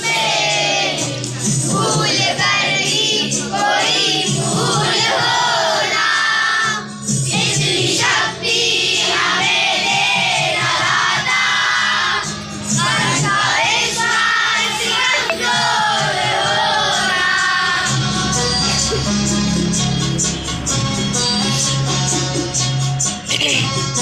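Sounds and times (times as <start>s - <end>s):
children singing in unison: 0.0s - 18.4s.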